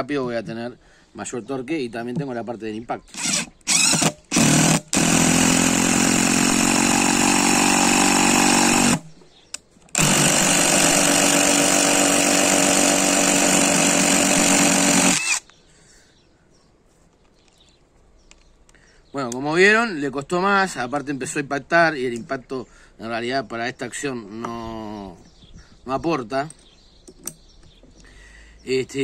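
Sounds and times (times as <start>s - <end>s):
impact driver drilling into wood: 3.1s - 9.2s, 9.9s - 15.5s.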